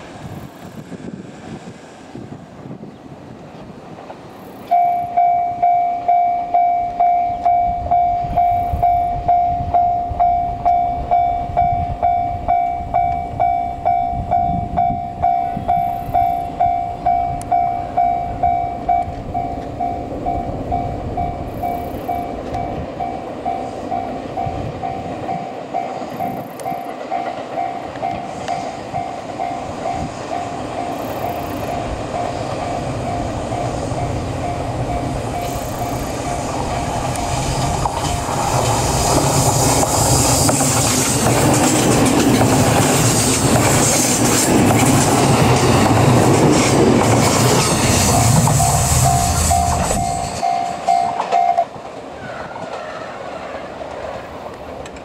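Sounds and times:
train rumbling: 0.0s - 55.0s
level-crossing warning bell: 4.6s - 38.6s, 47.5s - 51.8s.

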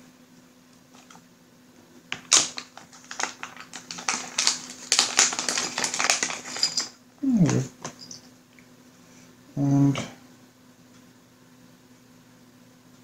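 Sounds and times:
plastic pieces clicking and rattling: 2.1s - 7.0s.

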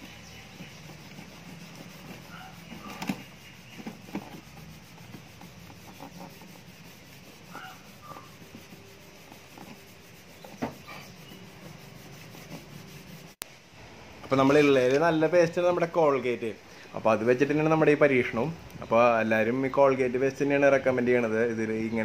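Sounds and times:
faint birds calling: 0.0s - 12.6s
cloth rubbing on paint: 0.0s - 13.4s.

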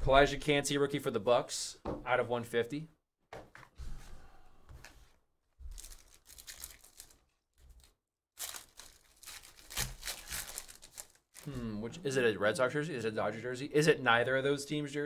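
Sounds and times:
foil wrapper tearing and crinkling: 5.7s - 11.5s.

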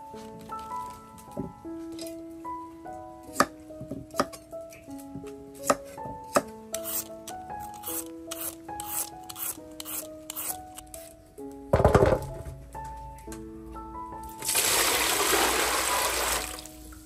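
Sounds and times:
peeler scraping carrot: 5.6s - 11.1s.

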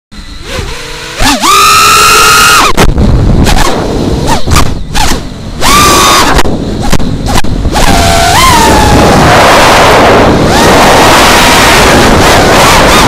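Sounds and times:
quadcopter motors whining: 0.2s - 13.0s
rushing wind noise: 0.2s - 13.0s.

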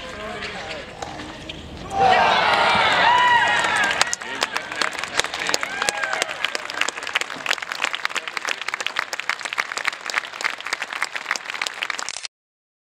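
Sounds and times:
crowd applauding: 1.9s - 12.2s.

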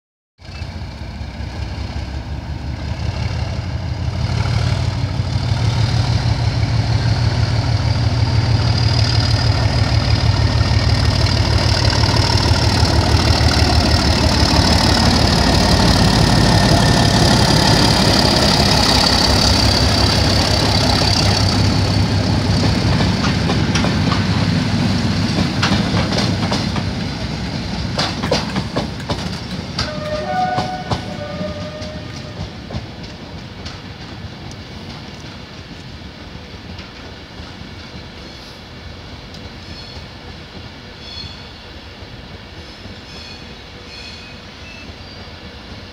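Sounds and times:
diesel locomotive engine pulsing: 0.4s - 45.9s
coaches clicking over rail joints: 7.2s - 38.4s.

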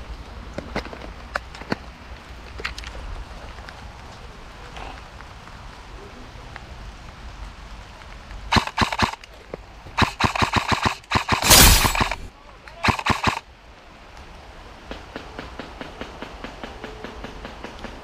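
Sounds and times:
airsoft gunfire: 8.5s - 9.2s, 10.0s - 13.4s.

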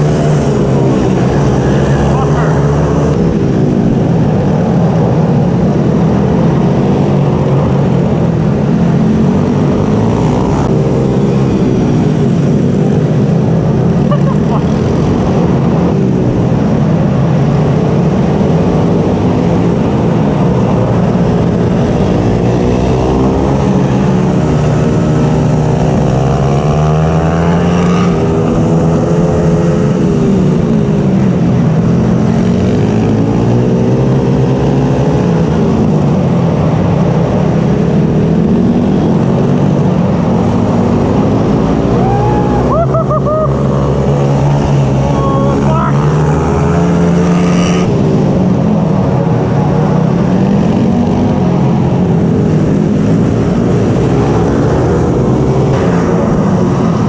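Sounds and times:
mini bike engine revving: 0.0s - 3.1s, 13.9s - 15.6s.

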